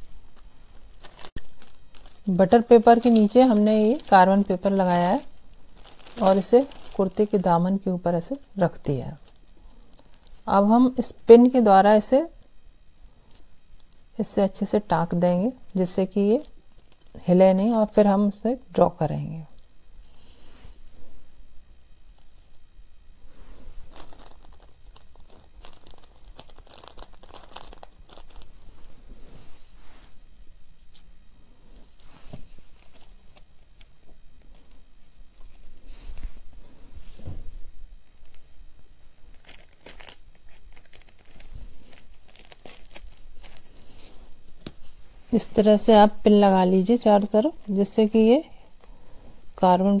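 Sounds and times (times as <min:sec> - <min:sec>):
paper crinkling and crackling: 0:00.0 - 0:07.9, 0:08.6 - 0:10.5, 0:23.8 - 0:30.2, 0:32.0 - 0:36.4, 0:38.2 - 0:45.7.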